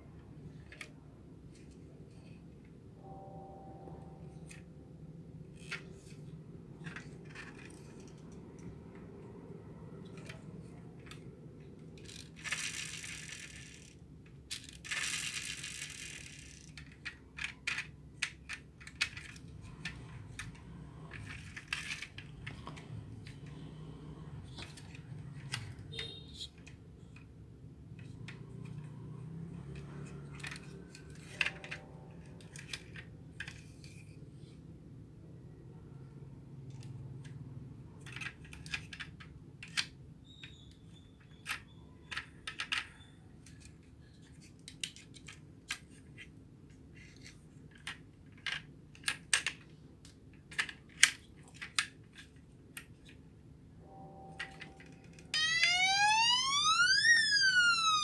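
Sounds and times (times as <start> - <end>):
toy truck clicking and rattling: 5.6 - 8.4, 11.8 - 23.6, 24.4 - 27.3, 29.6 - 34.2, 38.0 - 53.2, 54.4 - 58.0.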